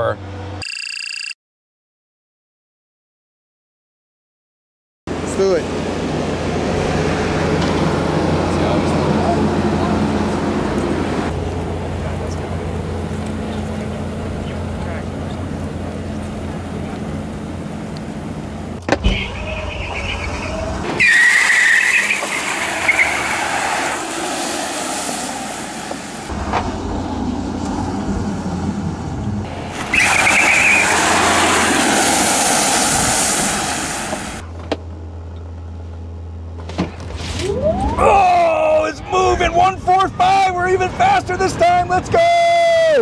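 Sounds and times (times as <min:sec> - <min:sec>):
high squeal: 0:19.0 - 0:24.0, 0:29.9 - 0:31.3.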